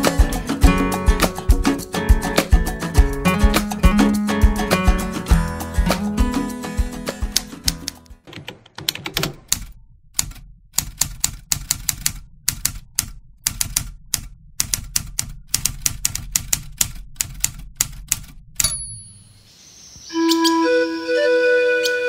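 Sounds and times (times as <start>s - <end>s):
typewriter keys clacking: 7.4s - 18.7s.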